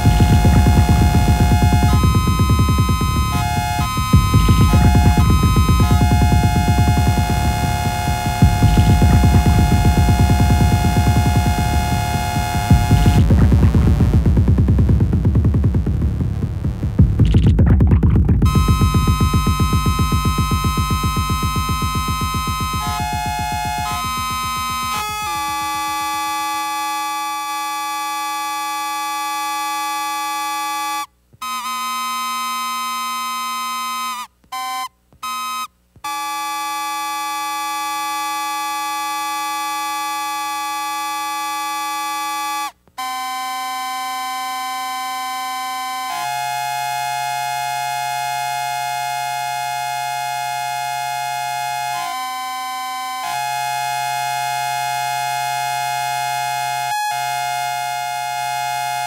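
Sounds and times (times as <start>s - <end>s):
deep synthesizer tone: 0.0s - 26.8s
buzzy synthesizer drone: 0.0s - 29.7s, 43.1s - 59.0s.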